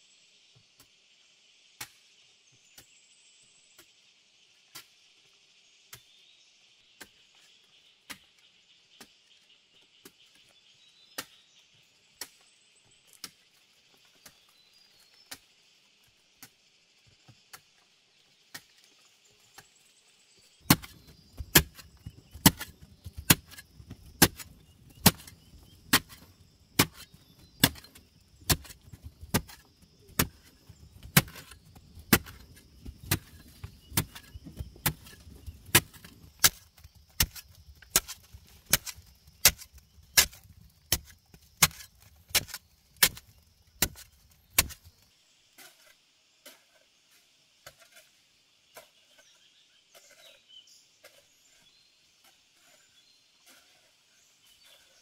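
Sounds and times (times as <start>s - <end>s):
loose earth tumbling: 12.9s - 49.3s
pick striking hard clay: 20.6s - 44.9s.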